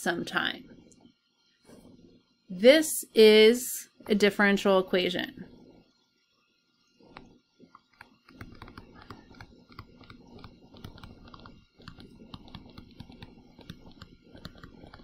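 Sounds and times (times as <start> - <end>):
stylus tapping on tablet: 7.1 - 15.0.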